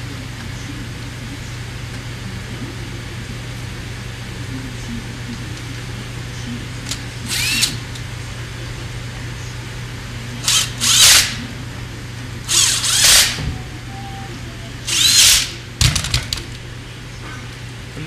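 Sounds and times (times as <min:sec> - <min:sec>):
cordless drill driving screws: 0:10.5 - 0:11.4, 0:12.5 - 0:13.4, 0:14.9 - 0:15.5.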